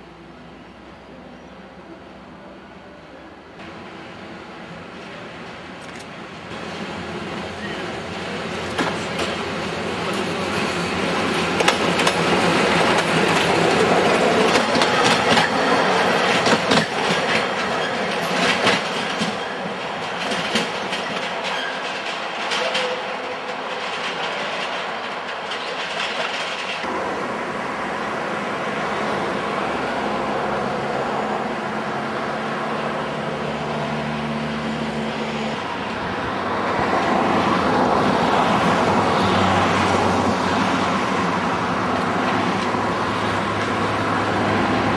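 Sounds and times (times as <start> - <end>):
distant train running hum: 0.0 - 44.9
train wheels clacking over rail joints: 7.4 - 26.9.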